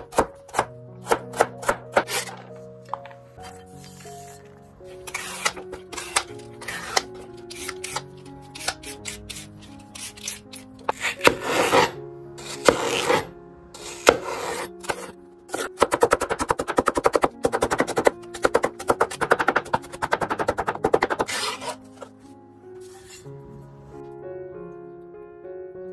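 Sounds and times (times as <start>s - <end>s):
knife chopping on cutting board: 0.0s - 2.4s, 10.0s - 21.8s
background music: 0.0s - 25.9s
knife scraping celery: 1.3s - 2.5s, 5.1s - 15.8s, 17.5s - 22.1s.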